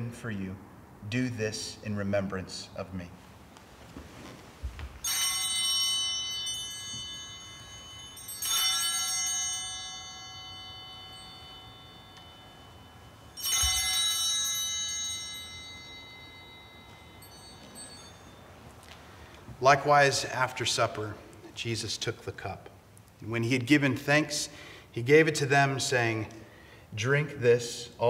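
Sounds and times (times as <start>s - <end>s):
altar bells ringing: 4.9s - 21.9s.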